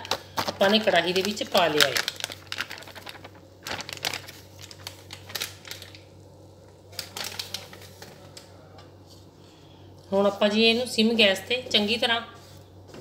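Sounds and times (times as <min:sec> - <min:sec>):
plastic packet crinkling: 0:00.0 - 0:06.2, 0:06.8 - 0:08.5.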